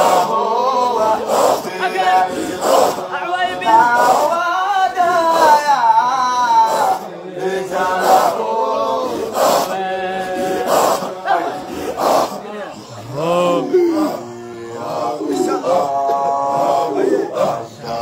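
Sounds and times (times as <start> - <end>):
men chanting: 0.0 - 18.0
group hand clapping: 2.5 - 3.1, 3.8 - 4.4, 9.1 - 9.8.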